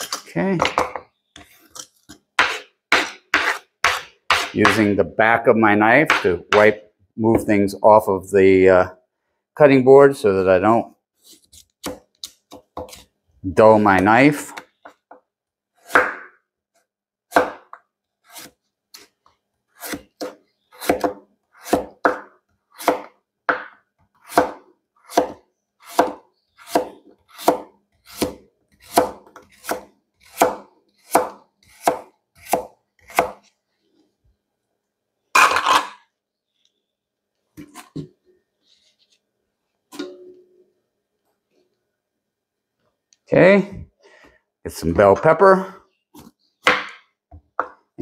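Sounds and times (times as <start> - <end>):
knife chopping carrot on board: 2.4 - 4.9, 17.3 - 19.1, 19.8 - 23.7, 24.3 - 33.4.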